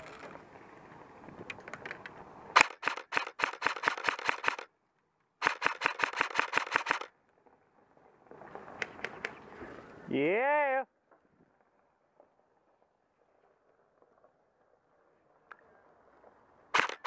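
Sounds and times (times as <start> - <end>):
airsoft rifle full-auto bursts: 2.6 - 4.7, 5.4 - 7.1, 16.7 - 17.0
faint single shots: 16.7 - 17.0.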